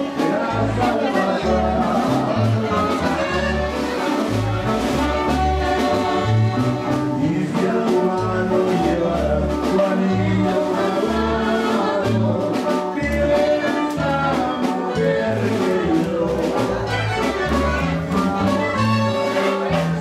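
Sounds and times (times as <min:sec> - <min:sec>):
person singing: 0:00.0 - 0:04.2, 0:05.0 - 0:20.0
steady bass beat: 0:00.5 - 0:12.4.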